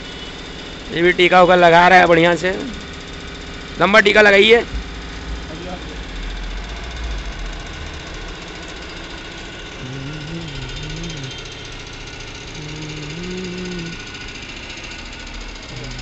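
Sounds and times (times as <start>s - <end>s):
rapid mechanical rattle: 0.0s - 16.0s
faint voice: 9.8s - 11.4s, 12.6s - 14.0s, 15.7s - 16.0s.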